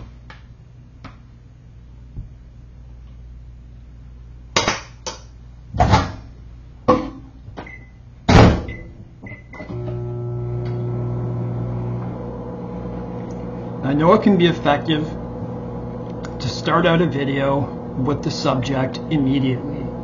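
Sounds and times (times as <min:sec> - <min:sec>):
electric appliance hum: 0:09.2 - 0:20.0.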